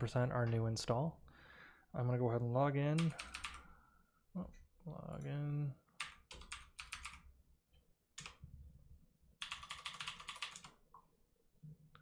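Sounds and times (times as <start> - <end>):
keyboard typing: 3.0 - 3.7, 6.0 - 7.3, 8.2 - 8.4, 9.4 - 11.0.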